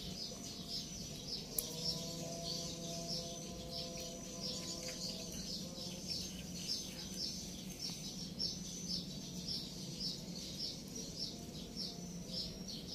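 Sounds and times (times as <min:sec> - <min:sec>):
bird chirping: 0:00.0 - 0:12.9
faint low hum: 0:00.0 - 0:12.9.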